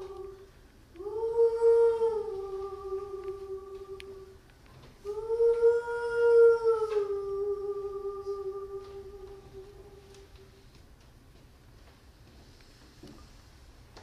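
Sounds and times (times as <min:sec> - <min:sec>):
woman singing a held note: 0:00.0 - 0:04.4, 0:05.0 - 0:10.5.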